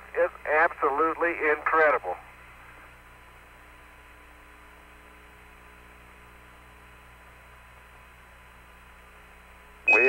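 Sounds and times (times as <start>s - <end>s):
electrical hum: 0.0s - 10.0s
faint radio hiss: 0.0s - 10.0s
steady radio tones: 0.1s - 2.2s.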